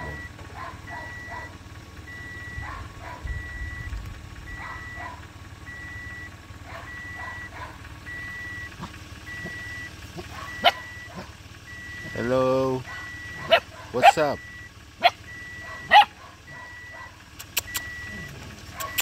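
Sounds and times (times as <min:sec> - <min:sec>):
reversing alarm beeping: 0:00.0 - 0:02.7, 0:03.3 - 0:13.6, 0:14.2 - 0:19.0
puppy yelp: 0:04.6 - 0:05.2, 0:06.7 - 0:07.8, 0:10.2 - 0:11.3, 0:12.8 - 0:19.0
puppies whimpering: 0:06.7 - 0:19.0.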